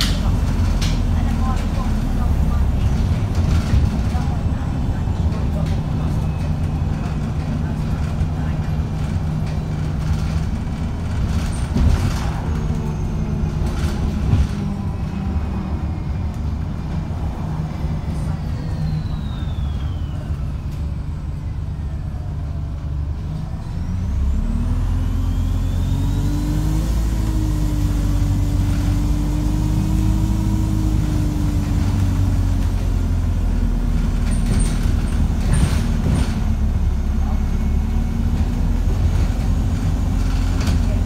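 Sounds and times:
bus engine from inside: 0.0 - 41.0
whines: 18.4 - 22.2, 23.6 - 26.9.

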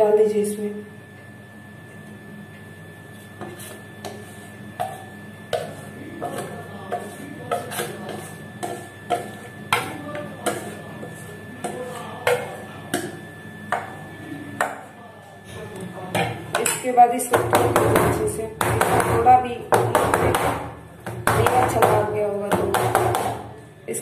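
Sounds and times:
whisk clinking against metal bowl: 3.4 - 14.0.

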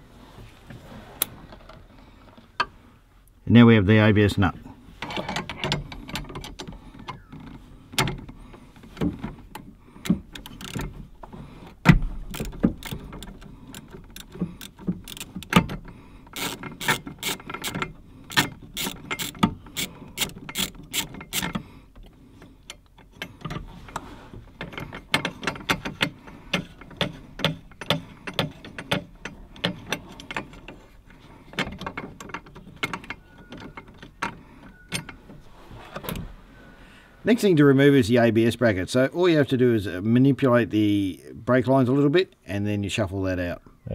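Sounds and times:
socket ratchet clicking: 12.3 - 21.6.

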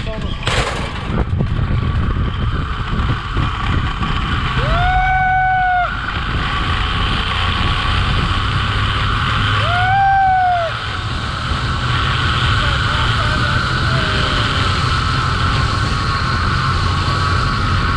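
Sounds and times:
trolley running along steel cable: 0.0 - 17.9
wind rushing: 1.0 - 17.9
person screaming: 4.6 - 6.0, 9.6 - 10.8.

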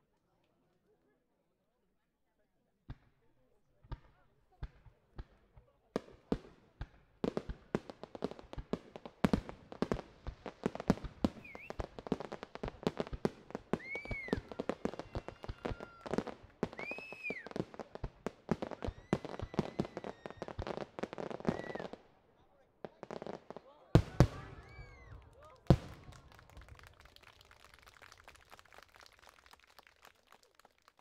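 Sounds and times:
fireworks bangs and crackling: 3.9 - 22.1, 22.8 - 30.4
firework whistles: 11.3 - 11.8, 13.8 - 16.0, 16.7 - 17.6, 18.8 - 20.5, 21.4 - 21.9, 24.3 - 25.3.

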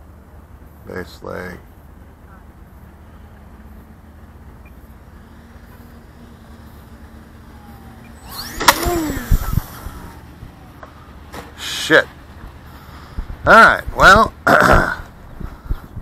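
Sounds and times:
model plane motor humming: 4.5 - 11.4.

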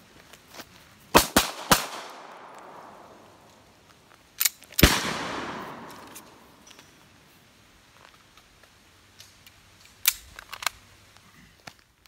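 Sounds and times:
pistol shots with echo: 1.2 - 3.4, 4.8 - 6.6.

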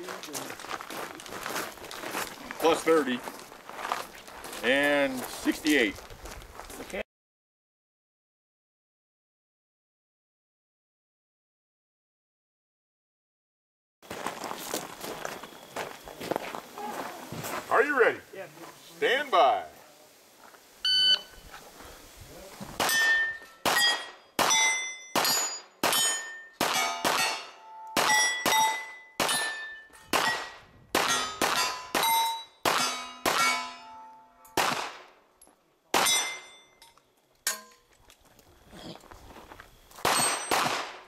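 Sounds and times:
shot timer beep: 20.9 - 21.3
handgun shots: 22.8 - 33.7, 34.6 - 35.1, 40.0 - 41.0
steel plate clanging: 22.8 - 34.6, 36.0 - 37.9.

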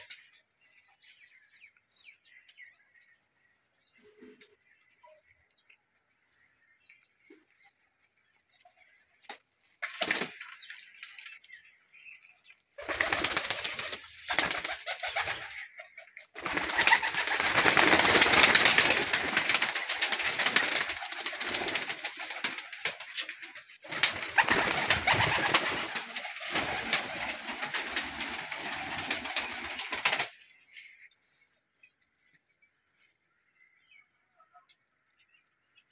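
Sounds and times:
pigeons cooing: 24.0 - 28.9.

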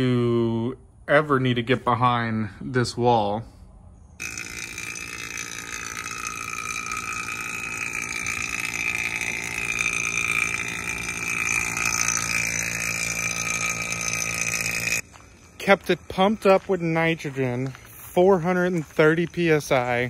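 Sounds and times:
vacuum pump running: 4.2 - 20.0.

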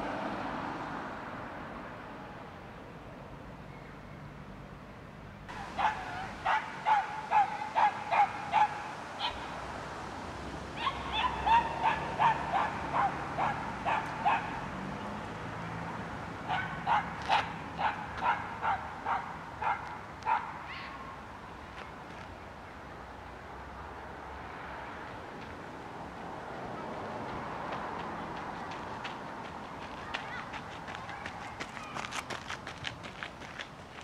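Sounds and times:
dog yapping: 5.8 - 9.4, 10.8 - 14.5.

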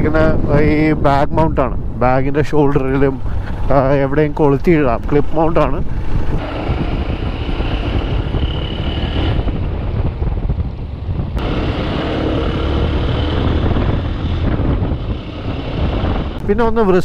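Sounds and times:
road noise: 0.0 - 17.0
wind buffeting microphone: 0.0 - 17.0
motorcycle engine: 5.9 - 16.4.

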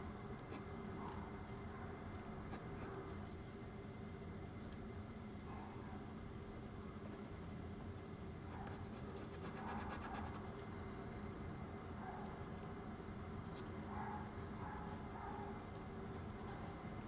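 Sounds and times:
faint low hum: 0.0 - 17.0
pen scratching on paper: 8.6 - 10.4.

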